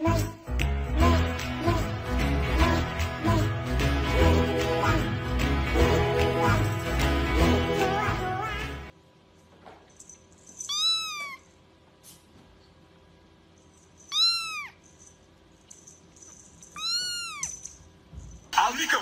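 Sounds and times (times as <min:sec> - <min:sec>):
kitten mewing: 0:10.7 - 0:11.4, 0:14.1 - 0:14.8, 0:16.8 - 0:17.5.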